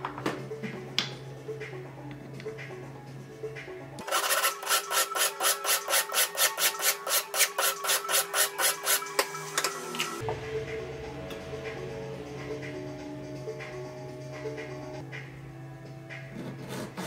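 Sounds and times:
needle file rasping on metal: 0:04.0 - 0:09.2.

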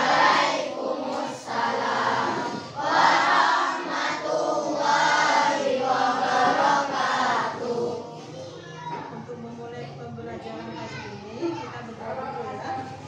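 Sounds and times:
children singing in unison: 0:00.0 - 0:08.4.

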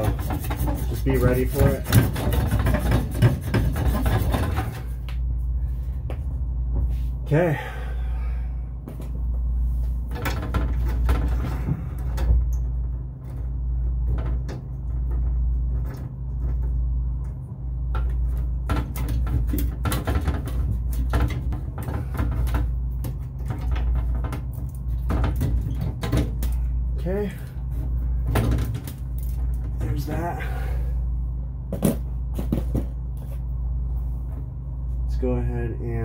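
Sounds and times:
clicks and scrapes on copper pipes: 0:00.0 - 0:05.2, 0:10.2 - 0:26.7
steady low hum: 0:00.0 - 0:36.0.

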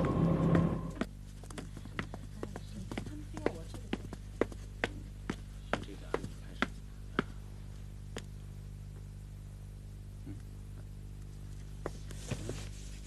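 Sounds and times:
footsteps on hard floor: 0:00.0 - 0:06.8
low electrical hum: 0:00.0 - 0:13.0.

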